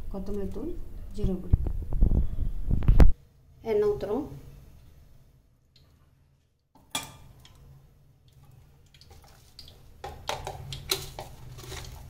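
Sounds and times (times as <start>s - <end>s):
low steady hum: 0.0s - 12.0s
oil ticking and popping: 6.6s - 12.0s.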